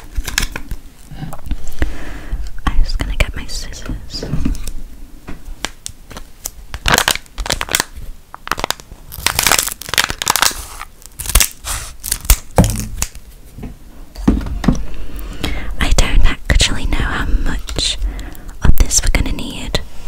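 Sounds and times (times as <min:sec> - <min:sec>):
sachet tearing open: 0:00.0 - 0:00.8, 0:05.6 - 0:13.3
sachet crinkling: 0:00.0 - 0:01.1, 0:05.6 - 0:13.3.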